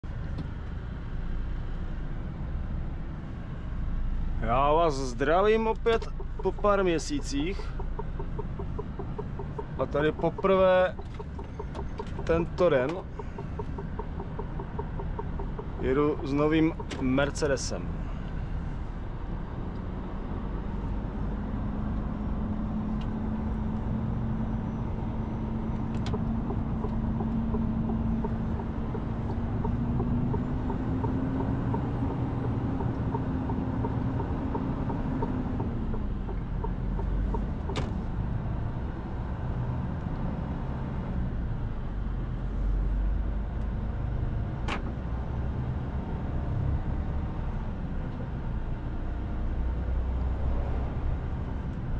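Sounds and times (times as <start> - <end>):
truck diesel engine droning: 0.0 - 51.9
sharp clicks in cab: 5.5 - 17.6, 25.7 - 38.1, 44.6 - 45.0.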